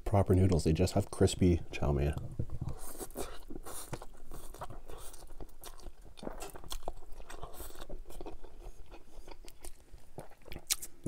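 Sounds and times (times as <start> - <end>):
man slurping and chewing noodles: 2.4 - 11.0.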